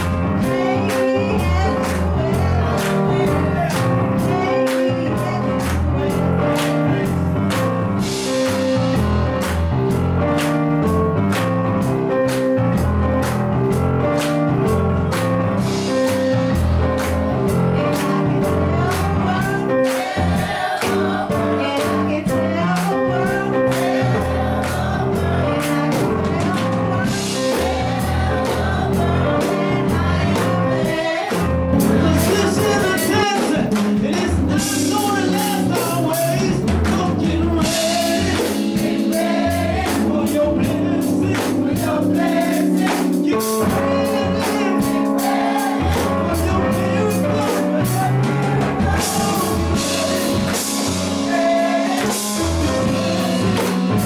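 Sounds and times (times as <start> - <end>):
gospel choir singing: 0.0 - 54.0
steady drum beat: 0.0 - 54.0
woman singing into microphone: 0.4 - 3.6, 4.2 - 5.8.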